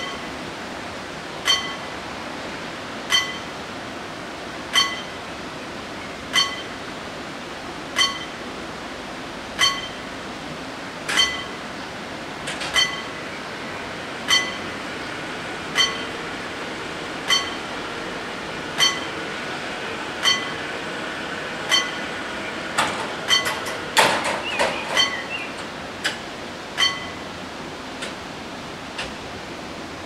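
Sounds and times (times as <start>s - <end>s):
level crossing warning bell: 0.0s - 0.3s, 1.4s - 1.9s, 3.1s - 3.6s, 4.7s - 5.2s, 6.3s - 6.8s, 8.0s - 8.5s, 9.6s - 10.1s, 11.2s - 11.7s, 12.8s - 13.2s, 14.2s - 14.8s, 15.6s - 16.4s, 17.2s - 19.3s, 20.0s - 22.4s, 23.2s - 23.8s, 24.9s - 25.4s, 26.8s - 27.3s.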